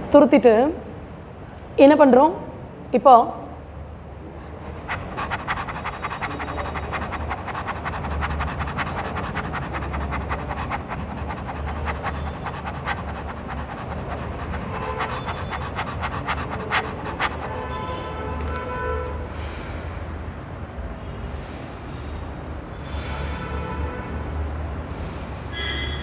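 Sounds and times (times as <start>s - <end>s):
woman panting rapidly: 4.8s - 18.4s, 22.8s - 23.9s, 24.9s - 25.8s.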